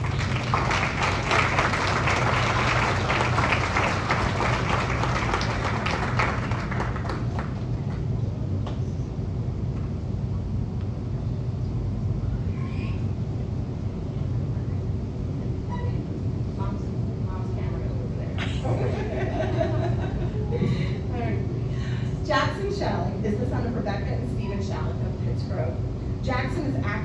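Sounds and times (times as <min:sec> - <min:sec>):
audience applauding: 0:00.0 - 0:08.1
steady low hum: 0:00.0 - 0:27.0.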